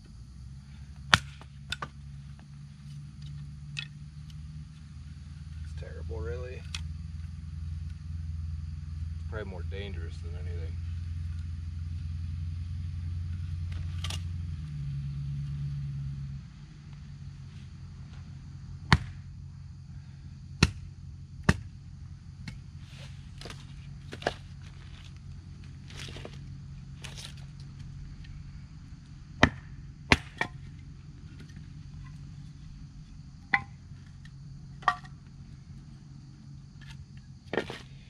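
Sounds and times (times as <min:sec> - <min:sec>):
hatchet chopping wood: 0:01.1 - 0:02.0, 0:18.9 - 0:19.3, 0:20.6 - 0:21.7, 0:22.4 - 0:22.7, 0:29.4 - 0:30.7, 0:33.5 - 0:33.8
wood rustling: 0:22.4 - 0:29.6, 0:36.7 - 0:38.0.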